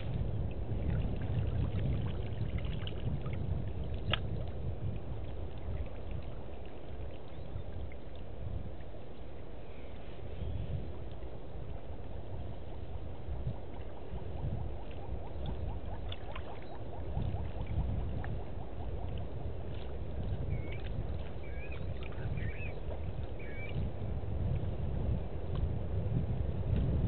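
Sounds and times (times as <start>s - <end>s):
steady low rush: 7.8s - 21.6s
faint high chirps: 20.5s - 23.8s.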